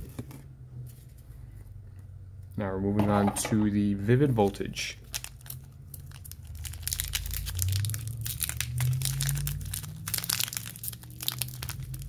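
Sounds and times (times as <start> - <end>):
foil wrapper crinkling: 4.4 - 12.0.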